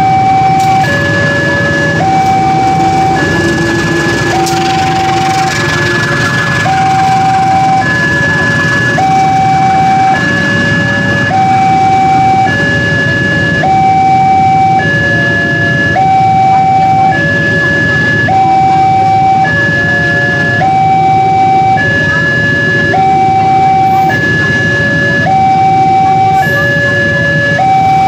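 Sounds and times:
train coaches rumbling past: 0.0 - 14.0
two-tone crossing alarm: 0.0 - 28.0.

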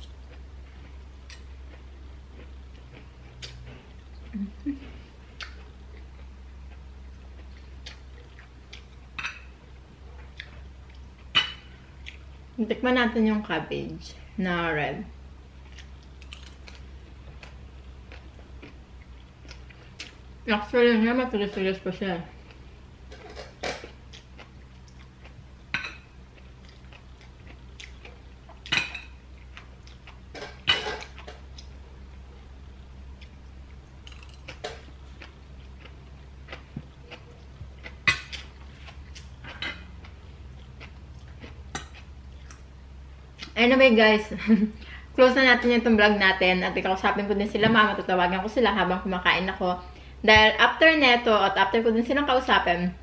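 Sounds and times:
faint chewing: 0.0 - 9.2, 10.0 - 11.3, 12.0 - 12.4, 15.6 - 20.3, 22.3 - 42.7
steady low hum: 0.0 - 53.0.

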